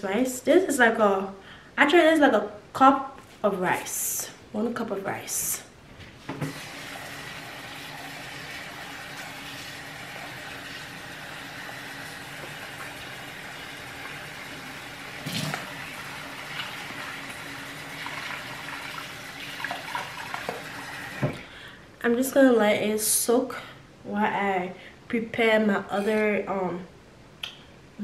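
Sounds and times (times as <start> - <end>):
tap water running into bowl: 6.4 - 21.4.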